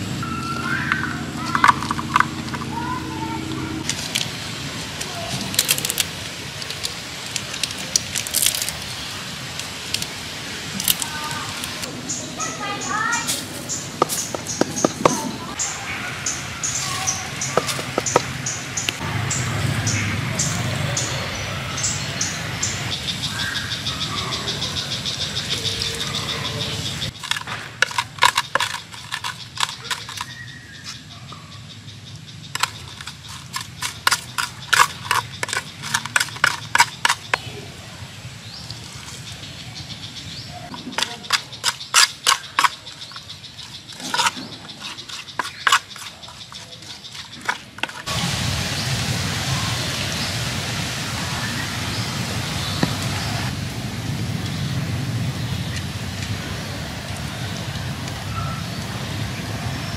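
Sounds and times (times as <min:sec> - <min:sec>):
steady background rush: 0:00.0 - 0:48.2
pestle pounding in a mortar: 0:14.0 - 0:15.4, 0:17.4 - 0:18.4, 0:32.6 - 0:37.4, 0:40.7 - 0:48.1.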